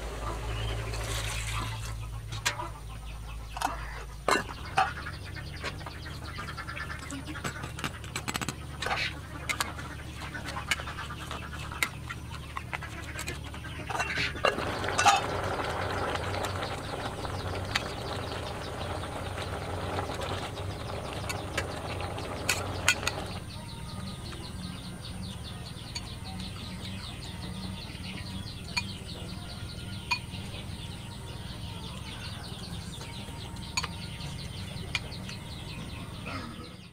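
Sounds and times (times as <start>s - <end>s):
faint farmyard birds: 0.0s - 36.9s
rustling pouring noise: 0.8s - 1.9s, 14.5s - 23.4s
utensils clinking on metal pot: 13.9s - 23.4s.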